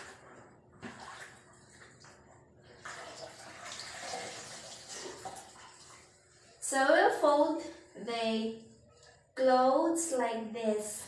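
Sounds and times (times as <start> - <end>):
cloth rinsed in water: 0.0 - 6.5
water splashing: 0.8 - 2.0, 2.7 - 6.2.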